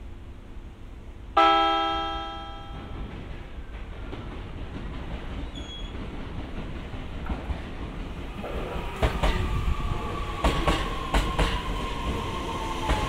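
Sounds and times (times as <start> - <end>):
train running rumble: 0.0 - 13.0
train horn blast: 1.4 - 2.9.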